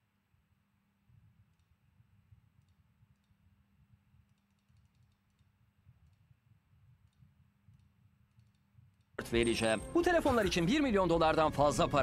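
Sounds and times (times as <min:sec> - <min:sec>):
computer mouse clicks: 0:01.5 - 0:01.8, 0:02.6 - 0:03.5, 0:04.2 - 0:06.3, 0:07.0 - 0:09.2.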